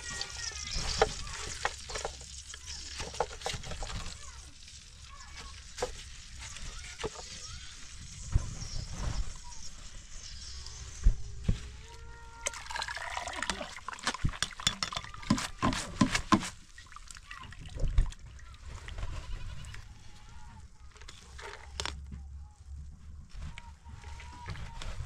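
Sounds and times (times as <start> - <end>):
metal ladle clinking and scraping: 14.3 - 16.5.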